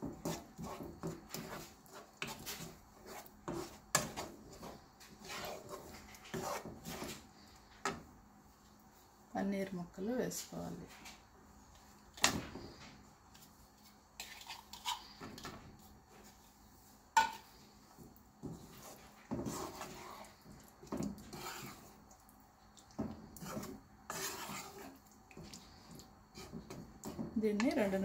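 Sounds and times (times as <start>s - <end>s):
spatula scraping and knocking pan: 0.0s - 8.1s, 14.2s - 16.4s, 17.2s - 22.0s, 22.9s - 28.0s.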